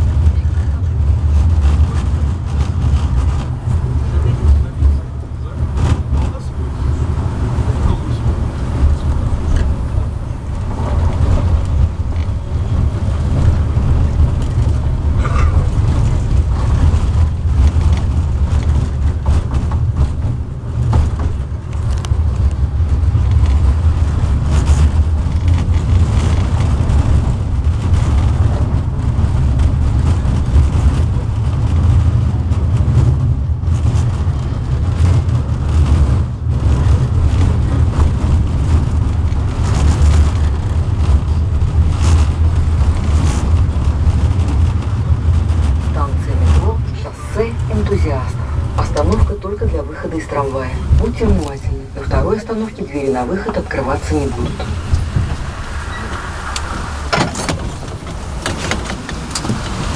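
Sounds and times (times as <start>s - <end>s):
tram rumbling: 0.0s - 59.9s
clicks and clatter: 10.5s - 46.7s.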